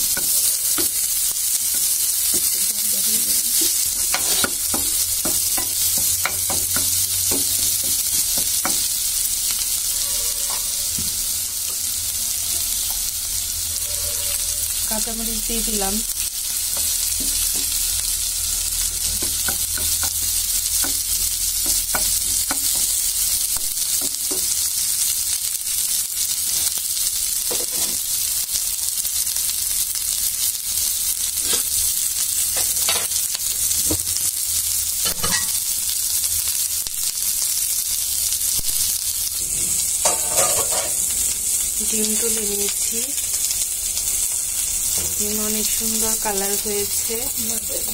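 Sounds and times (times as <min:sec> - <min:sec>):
onions sizzling in hot oil: 0:00.0 - 0:47.9
wooden spatula tapping and scraping: 0:03.5 - 0:08.9, 0:19.1 - 0:23.0.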